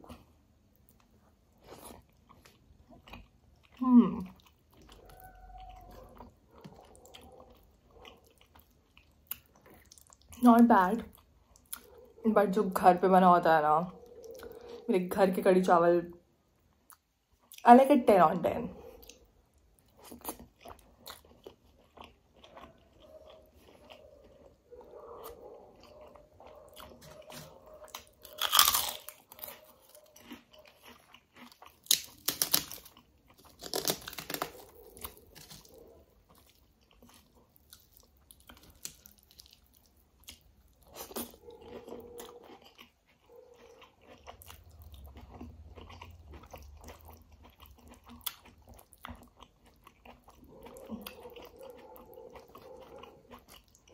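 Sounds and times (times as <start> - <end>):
chewing and mouth noises: 0.0 - 15.2, 16.5 - 53.9
loud crunchy bites: 27.9 - 35.7.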